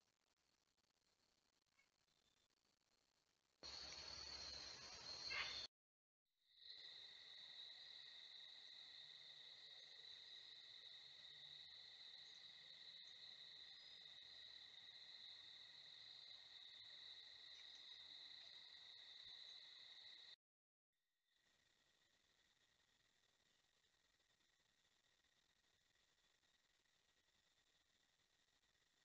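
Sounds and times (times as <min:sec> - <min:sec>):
crickets trilling: 0:03.6 - 0:05.7, 0:06.6 - 0:20.4.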